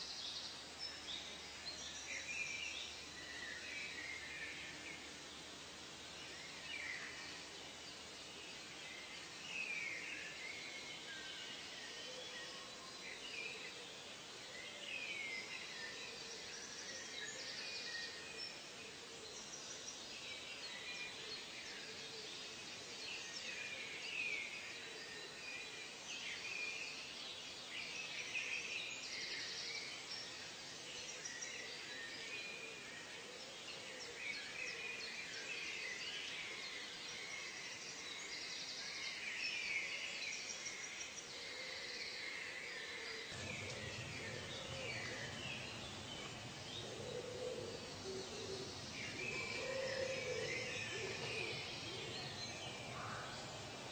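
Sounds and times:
steady hiss: 0:00.0 - 0:53.9
birds chirping and whistling: 0:43.3 - 0:53.1.

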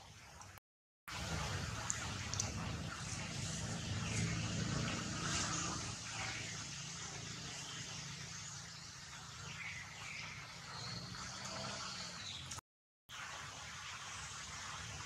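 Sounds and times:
low engine hum: 0:01.1 - 0:12.1.

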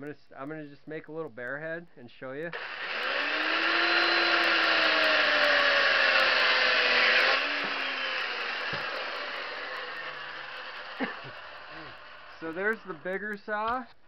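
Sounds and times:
chainsaw cutting wood: 0:02.6 - 0:13.8.

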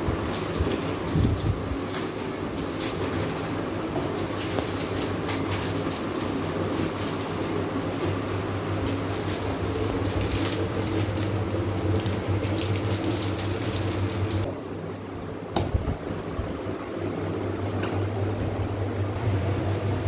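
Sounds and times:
low mechanical hum: 0:00.0 - 0:20.0
foil wrapper crinkling: 0:00.1 - 0:14.5.

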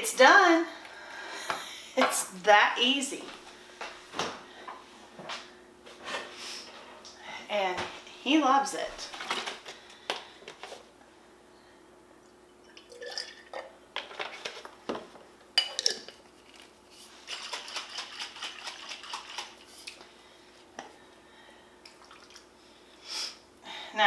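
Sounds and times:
glass jar clinking: 0:12.6 - 0:13.7, 0:15.6 - 0:16.1
jar rattling and liquid sloshing: 0:12.6 - 0:14.6, 0:15.6 - 0:20.0.

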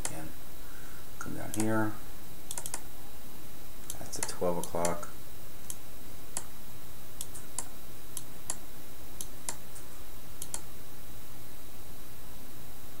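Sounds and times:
low hum and hiss: 0:00.0 - 0:13.0
computer mouse clicking: 0:01.5 - 0:01.7, 0:02.5 - 0:02.8, 0:03.8 - 0:05.8, 0:09.2 - 0:09.6, 0:10.4 - 0:10.6.

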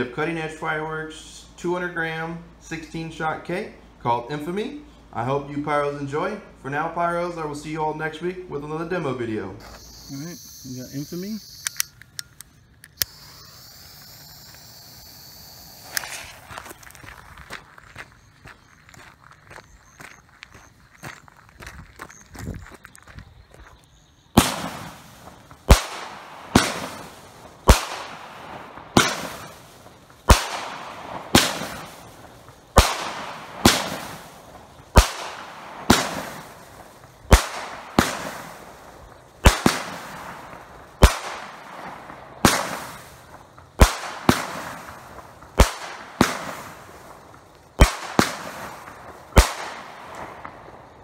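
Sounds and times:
firework cake sharp bangs: 0:24.3 - 0:51.0.

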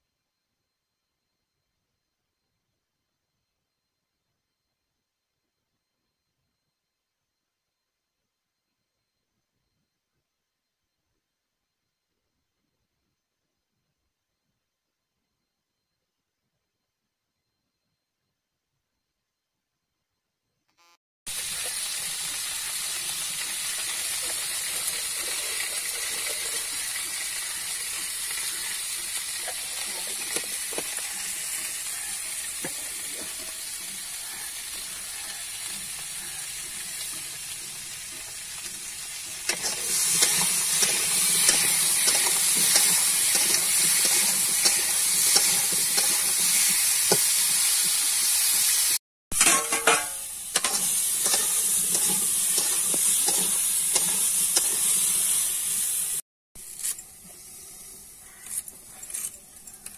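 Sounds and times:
potatoes sizzling in a pan: 0:21.3 - 0:59.9
steel spatula scraping a pan: 0:21.4 - 0:59.9.

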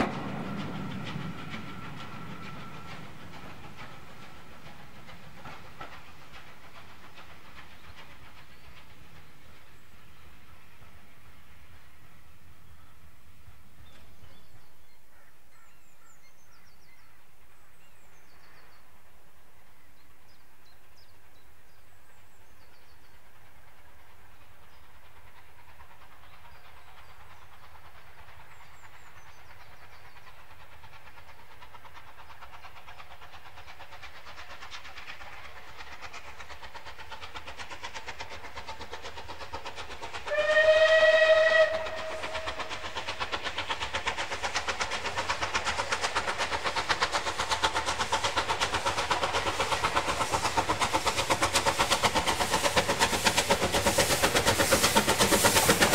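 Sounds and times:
steam locomotive exhaust beats: 0:00.0 - 0:55.9
steam locomotive whistle: 0:40.2 - 0:43.0.

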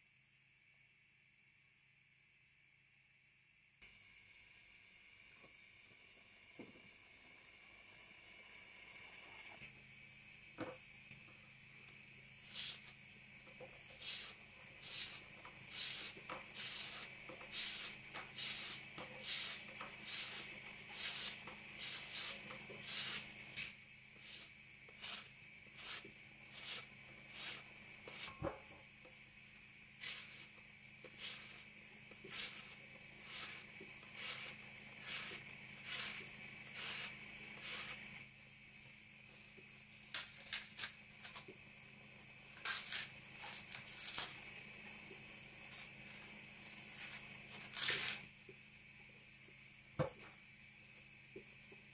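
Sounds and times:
vegetable peeler scraping: 0:12.4 - 0:13.0, 0:13.8 - 0:28.4, 0:30.0 - 0:30.5, 0:31.1 - 0:38.1, 0:40.0 - 0:41.4, 0:42.5 - 0:44.4, 0:46.7 - 0:48.2.

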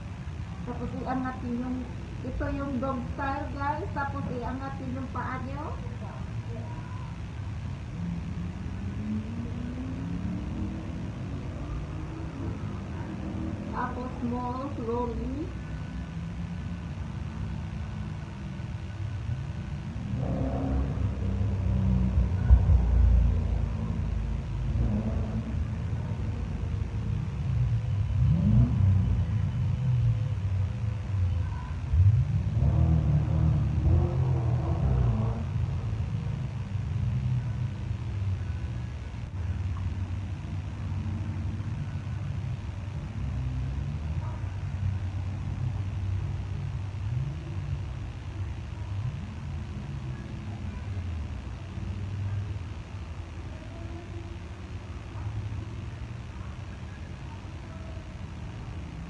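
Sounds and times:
low outdoor background rumble: 0:00.0 - 0:59.0
low rumble: 0:19.9 - 0:31.1.

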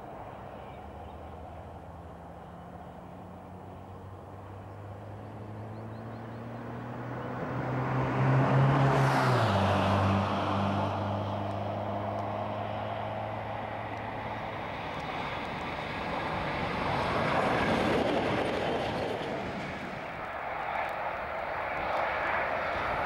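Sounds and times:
diesel locomotive engine: 0:00.0 - 0:06.7, 0:09.3 - 0:23.0
train wheels on rails: 0:15.0 - 0:21.2.

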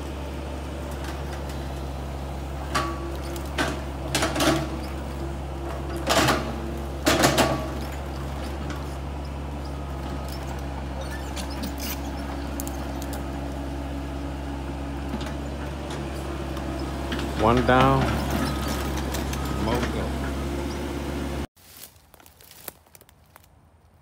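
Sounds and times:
diesel engine running: 0:00.0 - 0:21.5
wood cracking and snapping: 0:21.8 - 0:23.6.

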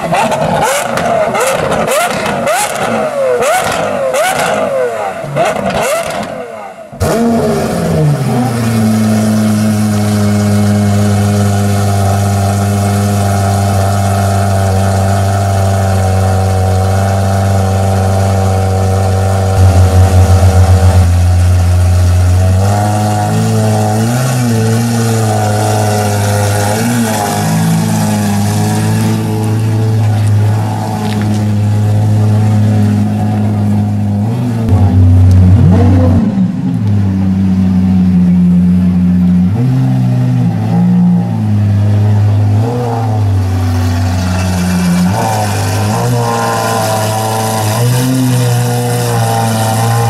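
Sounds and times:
sports car engine revving: 0:00.0 - 0:50.0
exhaust crackling: 0:06.9 - 0:38.2, 0:41.5 - 0:50.0
loud engine idle: 0:19.2 - 0:23.0.

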